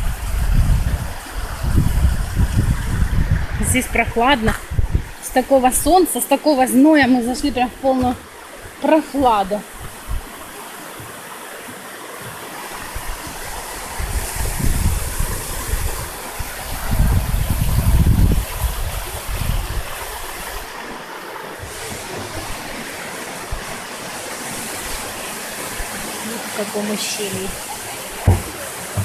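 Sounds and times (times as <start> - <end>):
low rumbling on microphone: 0.0 - 5.2
stream rushing over rocks: 0.0 - 29.0.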